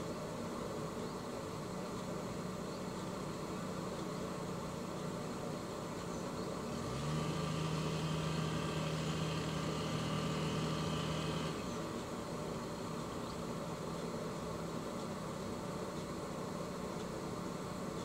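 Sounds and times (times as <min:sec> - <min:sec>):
boat engine idling and revving: 0:06.2 - 0:13.6.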